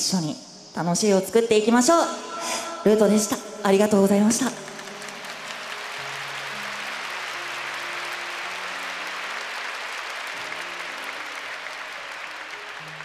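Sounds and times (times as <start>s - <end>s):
audience applauding: 4.6s - 13.0s.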